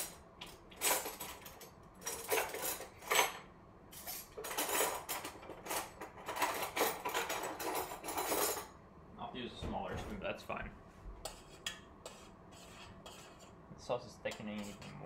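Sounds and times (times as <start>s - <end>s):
spoon scraping a pan: 11.2s - 13.6s, 14.2s - 15.0s.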